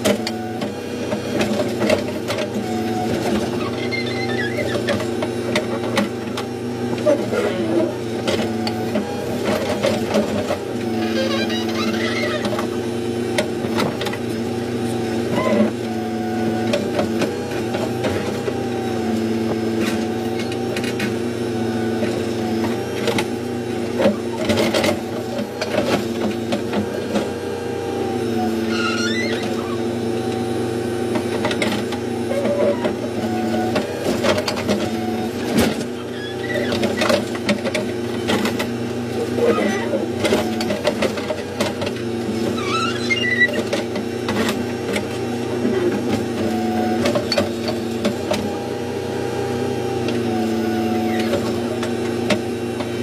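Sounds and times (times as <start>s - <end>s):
diesel engine running: 0.0s - 53.0s.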